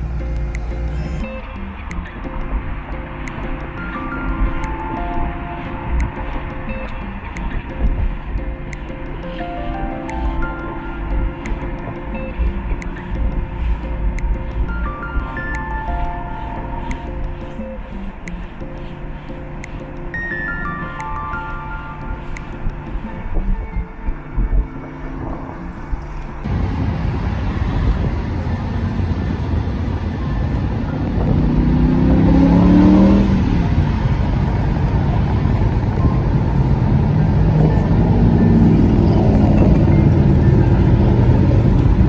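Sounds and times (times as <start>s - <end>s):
music: 0.0s - 26.5s, 29.2s - 42.0s
car engine accelerating: 25.2s - 42.0s.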